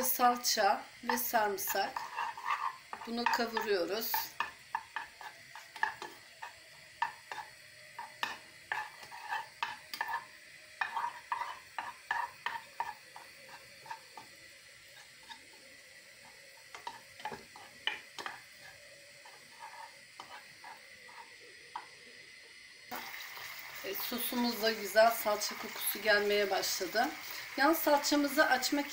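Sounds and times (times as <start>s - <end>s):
spoon tapping and scraping a pan: 0.0s - 22.0s
faint sizzle: 0.0s - 28.9s.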